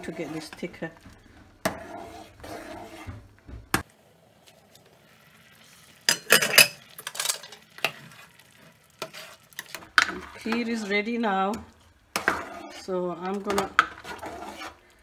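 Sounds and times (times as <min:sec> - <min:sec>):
metal ladle scraping pot: 0:00.0 - 0:03.3, 0:06.1 - 0:14.9
pot lid clattering on grate: 0:06.1 - 0:07.6.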